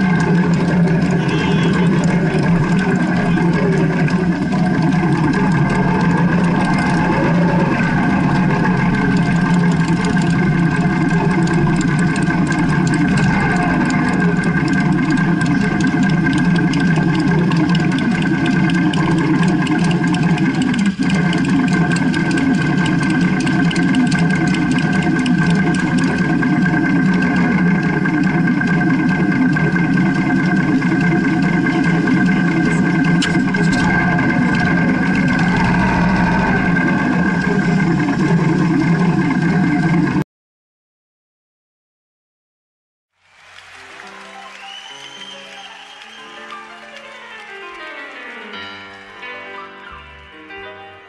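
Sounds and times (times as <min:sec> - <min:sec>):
motorcycle engine idling low: 0:00.0 - 0:40.2.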